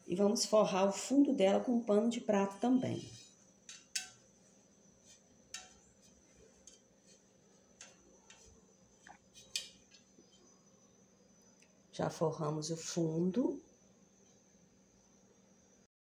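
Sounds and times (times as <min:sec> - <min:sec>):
dish towel rustling: 0:04.3 - 0:10.1.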